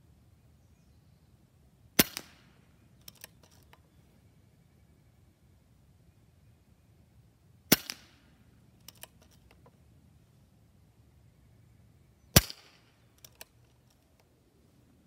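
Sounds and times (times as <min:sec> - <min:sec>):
air rifle shot: 0:02.0 - 0:02.5, 0:07.7 - 0:08.2, 0:12.4 - 0:12.8
soft clicks of rifle lever: 0:02.9 - 0:04.0, 0:08.7 - 0:09.8, 0:13.1 - 0:14.5.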